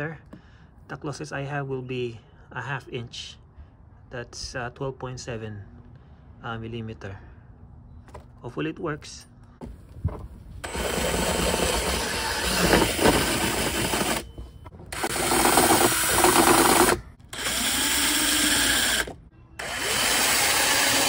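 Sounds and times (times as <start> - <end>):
power drill boring plastic: 10.6 - 14.3, 14.9 - 21.0.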